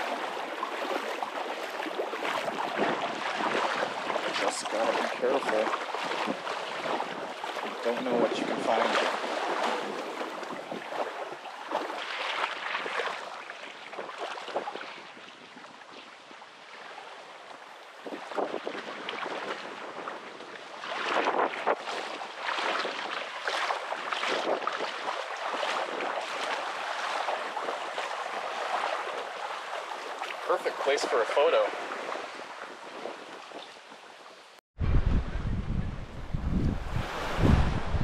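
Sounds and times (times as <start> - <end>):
sea water splashing: 0.0 - 34.6, 36.2 - 38.0.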